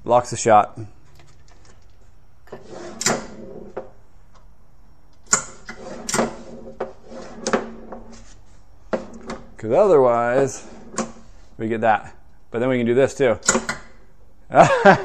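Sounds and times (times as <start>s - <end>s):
steel balls rolling on plywood: 5.5s - 9.6s.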